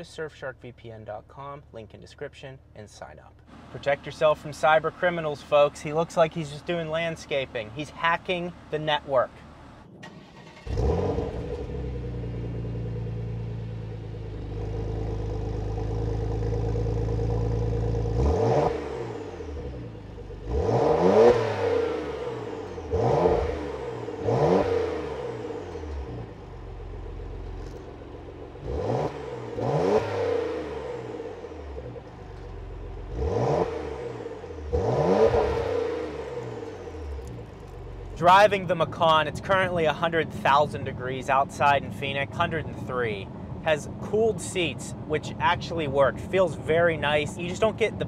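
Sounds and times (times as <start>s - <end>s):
car engine revving: 9.4s - 43.2s.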